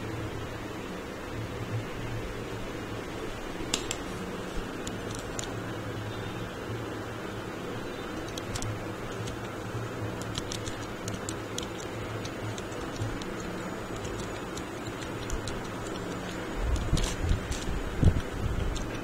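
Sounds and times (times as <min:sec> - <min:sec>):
steady low hum: 0:00.0 - 0:19.0
keyboard key clicks: 0:10.2 - 0:19.0.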